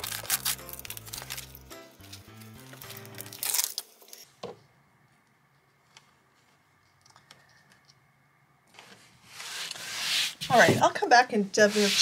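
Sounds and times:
paper rustling: 0:11.7 - 0:12.0.

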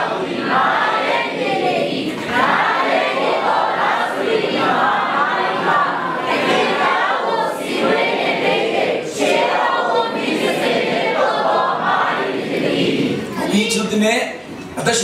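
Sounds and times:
many voices reciting in unison: 0:00.0 - 0:13.6.

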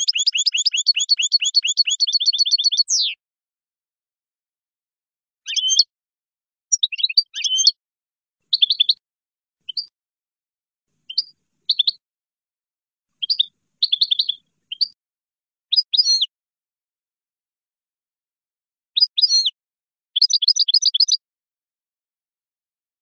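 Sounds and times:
goldfinch twittering song: 0:00.0 - 0:03.2, 0:05.5 - 0:05.9, 0:06.7 - 0:07.8, 0:08.5 - 0:09.0, 0:09.6 - 0:09.9, 0:11.0 - 0:12.0, 0:13.2 - 0:15.0, 0:15.7 - 0:16.3, 0:19.0 - 0:19.6, 0:20.2 - 0:21.2.

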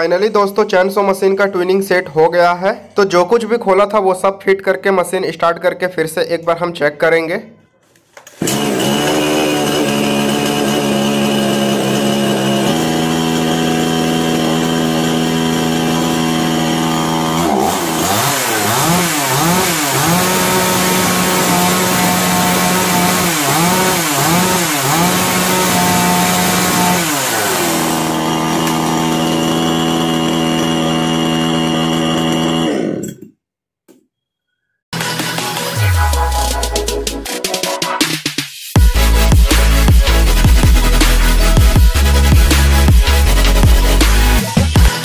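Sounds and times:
chainsaw engine idling and revving: 0:08.4 - 0:33.2, 0:38.8 - 0:45.0.

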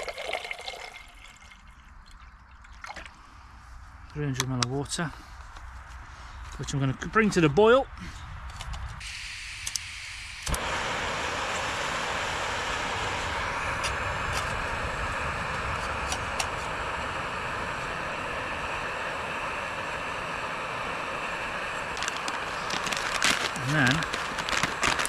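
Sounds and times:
gas burner hissing: 0:08.9 - 0:25.0.

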